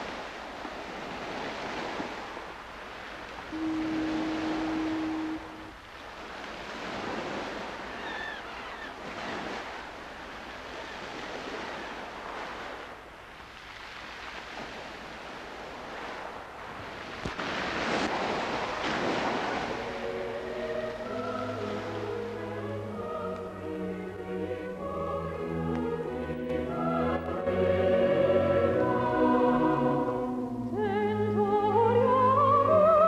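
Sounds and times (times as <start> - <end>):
waves washing onto rocky shore: 0.0 - 22.2.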